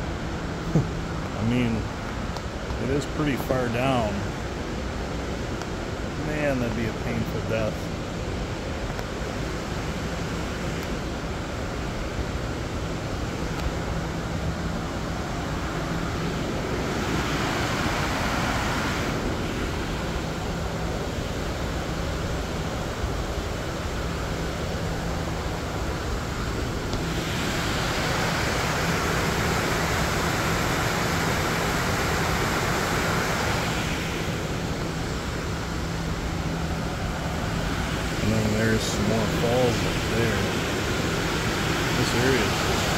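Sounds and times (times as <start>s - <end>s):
water rushing over rapids: 0.1s - 42.9s.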